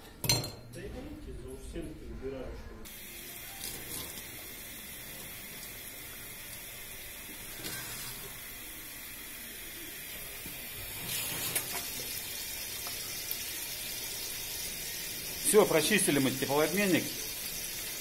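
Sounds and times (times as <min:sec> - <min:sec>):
water running into sink: 0:02.9 - 0:18.0.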